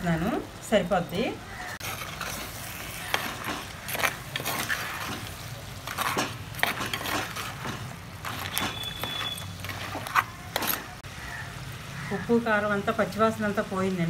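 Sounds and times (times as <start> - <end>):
spoon scraping clay pot: 1.8 - 11.0.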